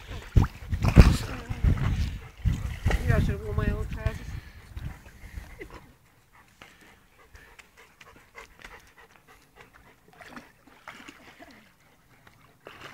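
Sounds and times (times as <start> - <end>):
dog panting: 4.3 - 10.3.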